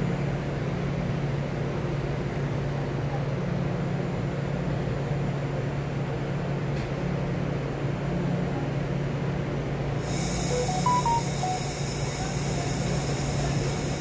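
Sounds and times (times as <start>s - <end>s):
short beeps: 10.5s - 12.0s.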